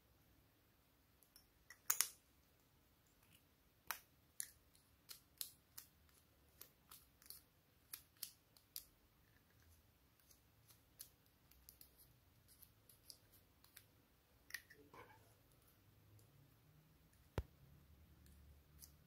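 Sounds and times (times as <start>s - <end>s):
plastic tubes and caps clicking: 1.2s - 2.2s, 3.0s - 16.3s, 18.2s - 19.0s.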